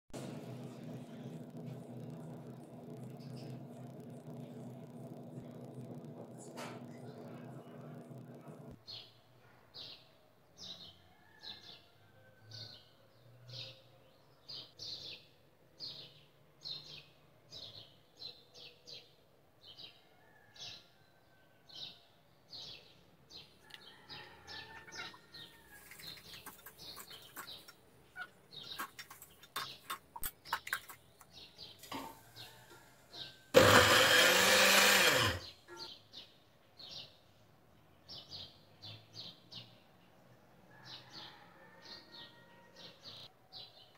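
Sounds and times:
electric food chopper running: 0.2 - 8.8, 33.5 - 35.5
bird chirping: 25.8 - 31.8.

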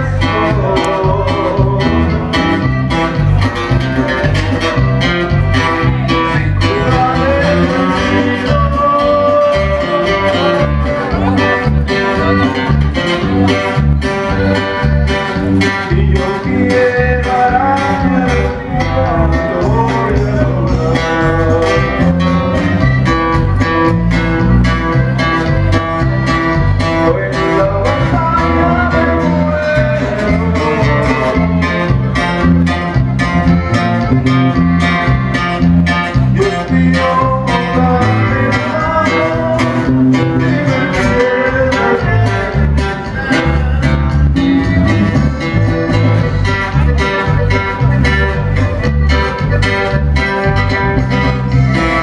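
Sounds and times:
accordion melody: 0.0 - 52.0
bouncing bass line: 0.0 - 52.0
drums on a steady beat: 38.3 - 52.0.

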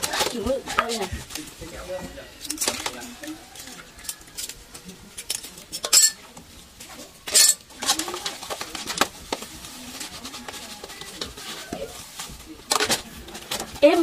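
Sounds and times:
bowls and plates clinking: 5.2 - 6.4, 7.2 - 9.4.

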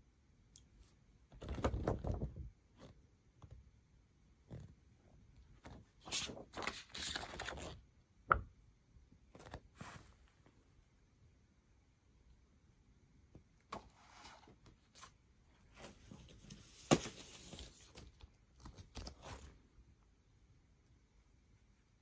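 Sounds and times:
paper pages rustling and turning: 5.6 - 7.8, 13.7 - 19.6.

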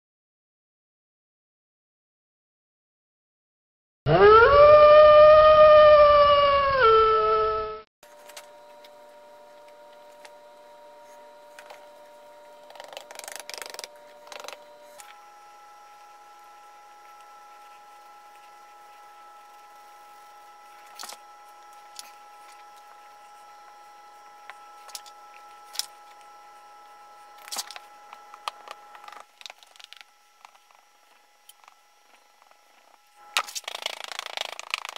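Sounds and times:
howl with falling pitch: 4.1 - 7.8
faint steady hum: 7.5 - 34.9
gloved hand rubbing powder: 9.4 - 15.2, 15.9 - 27.9, 32.7 - 34.9.

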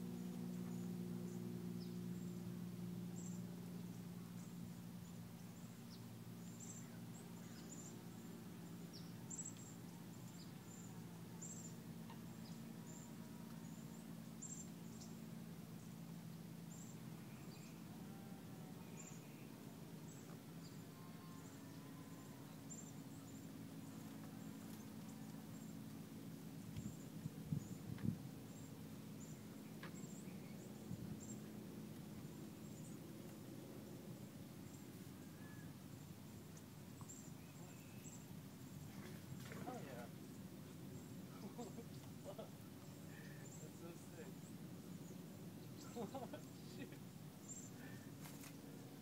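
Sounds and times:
steady low hum: 0.0 - 49.0
small birds chirping: 3.1 - 16.0, 22.5 - 33.4, 34.2 - 49.0.

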